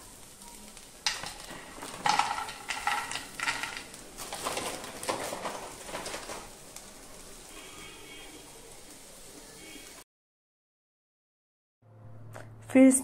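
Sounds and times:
nuts rattling into a frying pan: 0:00.1 - 0:07.5
plastic pouch crinkling: 0:01.1 - 0:06.5.

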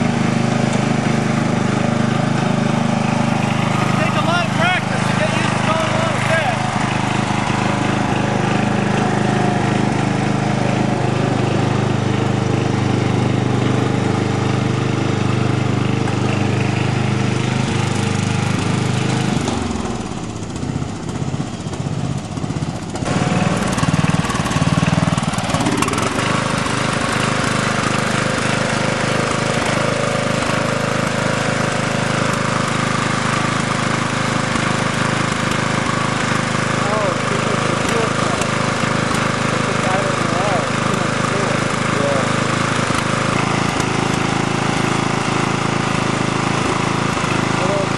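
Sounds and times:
lawn tractor engine running: 0:00.0 - 0:47.9.

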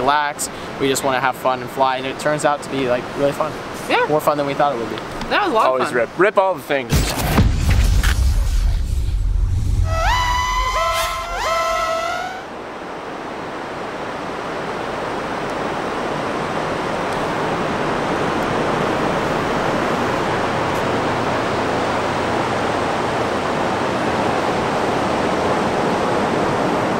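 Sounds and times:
ocean surf: 0:08.0 - 0:26.9.

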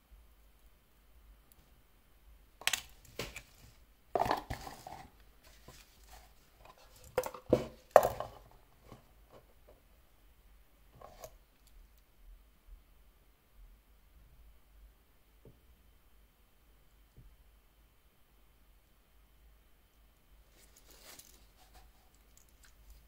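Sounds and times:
handling cardboard box and paper: 0:20.5 - 0:22.2.

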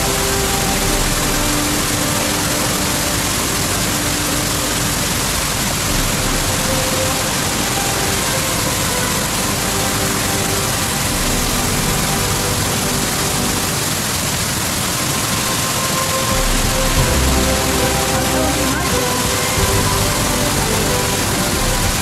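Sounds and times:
creek rushing over rocks: 0:00.0 - 0:22.0.

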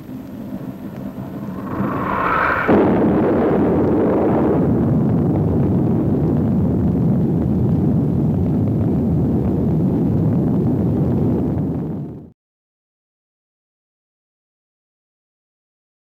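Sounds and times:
distant explosion rumble: 0:00.0 - 0:12.3.

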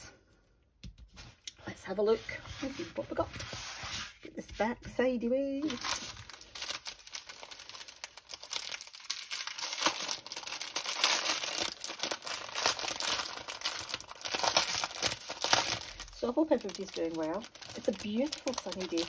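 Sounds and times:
plastic bags crinkling: 0:05.5 - 0:19.0.

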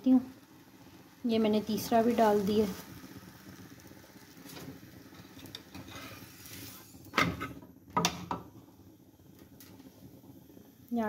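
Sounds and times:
exhaust fan humming: 0:00.0 - 0:07.1.

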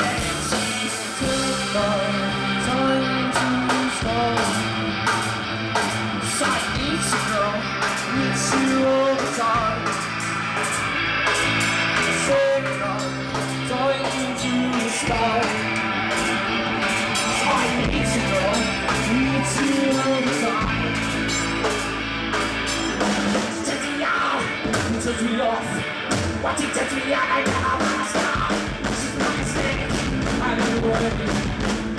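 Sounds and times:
person singing: 0:00.0 - 0:10.8, 0:11.4 - 0:21.3, 0:23.4 - 0:31.7
bass guitar: 0:00.0 - 0:31.9
drum kit with cymbal hits: 0:00.0 - 0:31.9
electric guitars: 0:00.0 - 0:31.9.

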